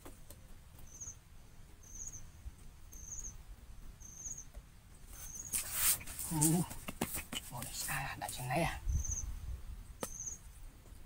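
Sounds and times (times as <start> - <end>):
hands scraping cardboard and dirt: 5.1 - 8.1.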